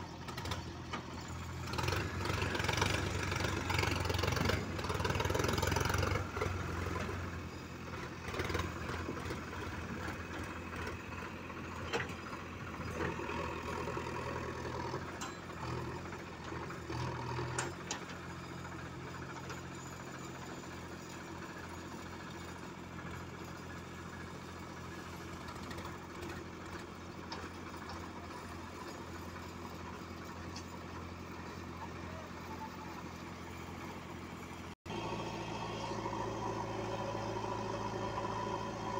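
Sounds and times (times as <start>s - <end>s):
diesel engines running: 0.0s - 38.9s.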